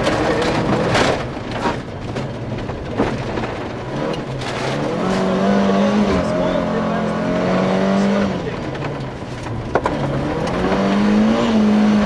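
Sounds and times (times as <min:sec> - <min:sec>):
gravel clattering against underbody: 0:00.0 - 0:06.8
rally car engine revving: 0:00.0 - 0:12.0.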